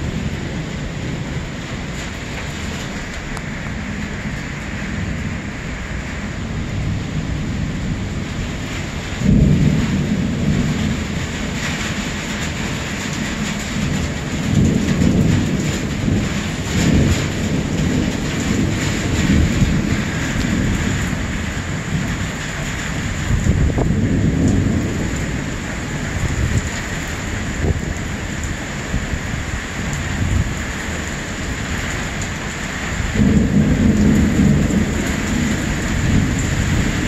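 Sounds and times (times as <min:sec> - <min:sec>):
heavy rain: 0:00.0 - 0:37.0
thunder: 0:07.9 - 0:27.9, 0:33.0 - 0:37.0.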